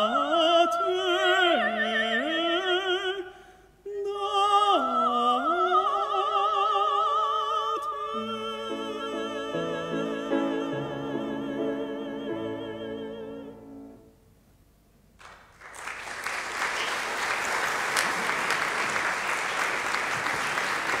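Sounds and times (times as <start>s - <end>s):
operatic duet singing: 0.0s - 14.0s
audience applause: 15.2s - 21.0s.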